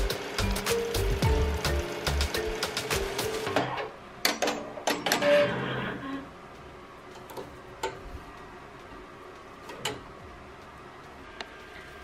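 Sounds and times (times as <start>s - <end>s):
embroidery machine running: 0.0s - 3.6s.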